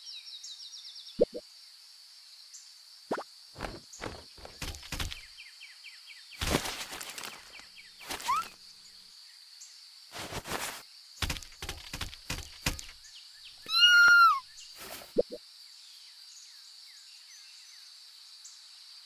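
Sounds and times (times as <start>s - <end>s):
small chirps: 1.2s - 1.4s, 6.4s - 8.6s, 13.6s - 15.4s
rustling thumps and pops: 3.1s - 5.3s, 6.4s - 8.6s, 10.2s - 13.0s.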